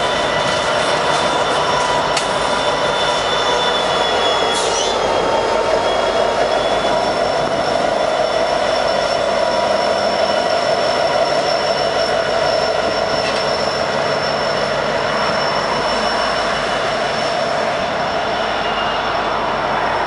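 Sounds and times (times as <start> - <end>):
diesel locomotives passing: 0.0 - 20.0
wheel squeal: 0.0 - 20.0.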